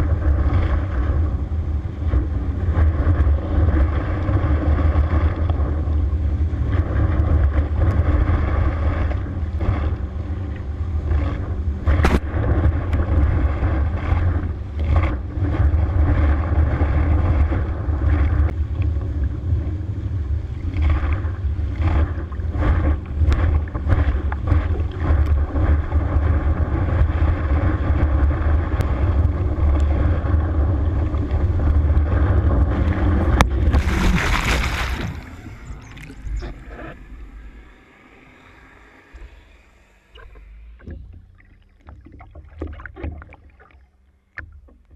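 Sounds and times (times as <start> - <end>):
motorboat engine droning: 0.0 - 44.9
water splashing over camera: 33.3 - 36.3
rushing spraying water: 33.6 - 35.5.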